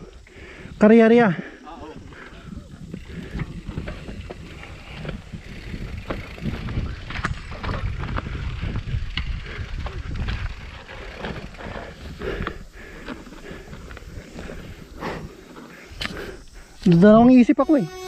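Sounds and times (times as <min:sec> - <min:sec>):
wind buffeting microphone: 0:01.5 - 0:16.8
bike tyre noise: 0:01.6 - 0:17.2
bike clicks and rattles: 0:02.1 - 0:17.2.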